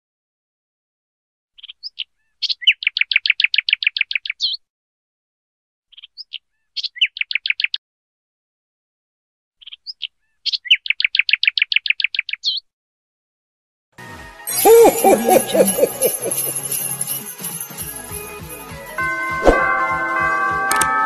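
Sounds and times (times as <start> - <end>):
bird chirps and trill: 1.6 - 4.6, 5.9 - 7.8, 9.6 - 12.7, 14.5 - 16.6.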